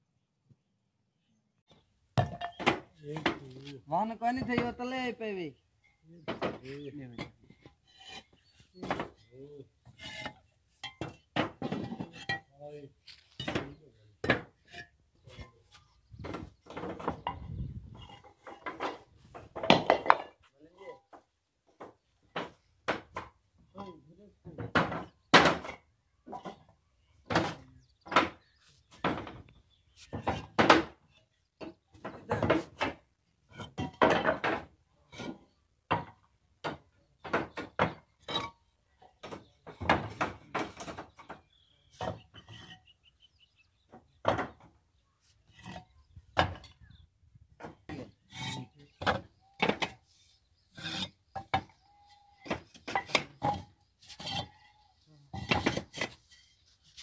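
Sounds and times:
bricks knocking and clacking: 0:02.2 - 0:03.5, 0:04.4 - 0:04.8, 0:06.2 - 0:12.5, 0:13.4 - 0:20.4, 0:21.2 - 0:23.4, 0:24.6 - 0:29.5, 0:30.1 - 0:31.0, 0:31.6 - 0:42.8, 0:45.5 - 0:50.1, 0:50.7 - 0:51.8, 0:52.4 - 0:54.5, 0:55.3 - 0:56.4.

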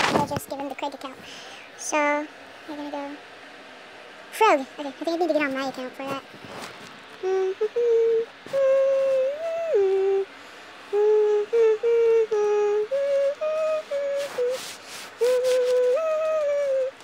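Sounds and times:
breathy hiss: 0:01.1 - 0:01.8, 0:06.4 - 0:17.0
person humming: 0:07.2 - 0:17.0.

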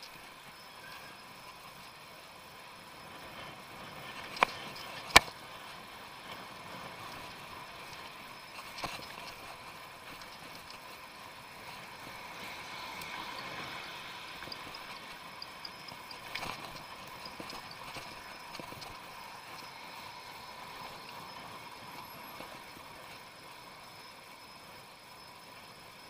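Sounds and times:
bicycle tyre road noise: 0:00.0 - 0:26.0
light rattling and ticking: 0:07.0 - 0:11.0, 0:14.2 - 0:22.6.

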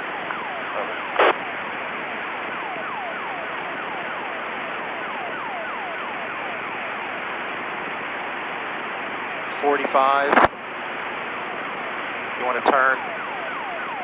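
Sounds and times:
radio hiss: 0:00.3 - 0:01.4, 0:09.4 - 0:10.6, 0:11.2 - 0:13.1.

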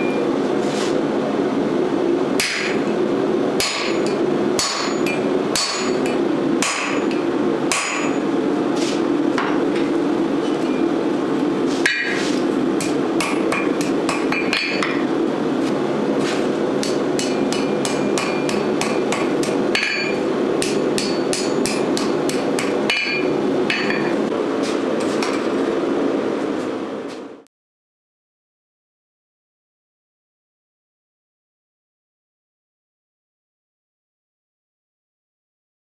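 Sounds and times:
steady hum: 0:00.0 - 0:27.5
hammer striking steel on anvil: 0:02.4 - 0:02.9, 0:03.6 - 0:08.3, 0:11.8 - 0:15.1, 0:16.8 - 0:24.3.

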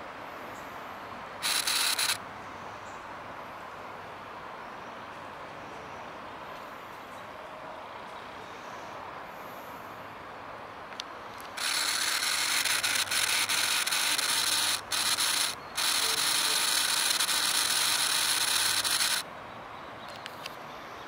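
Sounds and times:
high-pitched rasping noise: 0:01.4 - 0:02.2, 0:11.5 - 0:19.2.

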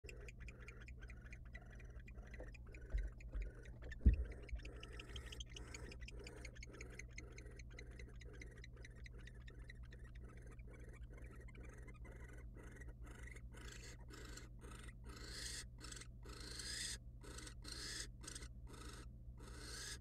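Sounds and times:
steady clicking: 0:00.0 - 0:09.4
low hum: 0:00.0 - 0:12.8.

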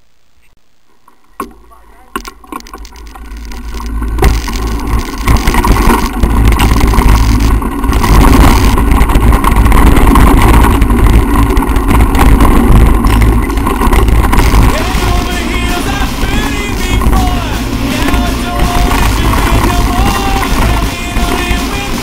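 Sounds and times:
bike rattling on dirt trail: 0:01.0 - 0:22.0
wind buffeting microphone: 0:03.0 - 0:22.0.

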